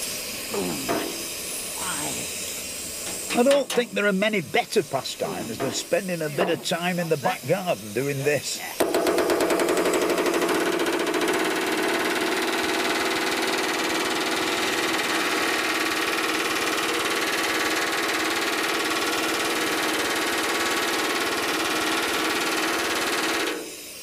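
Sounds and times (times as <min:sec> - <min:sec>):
rivet gun hammering steel: 0:05.3 - 0:07.4, 0:08.8 - 0:12.2.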